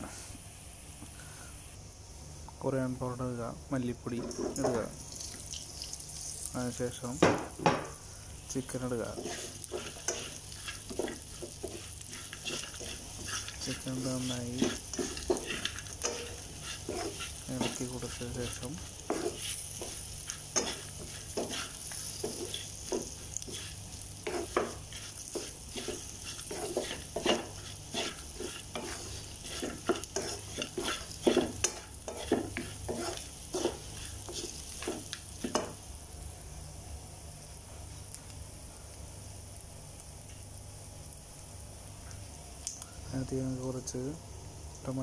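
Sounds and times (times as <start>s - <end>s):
frying sizzle: 0.0s - 45.0s
spatula scraping a metal pan: 9.1s - 35.7s.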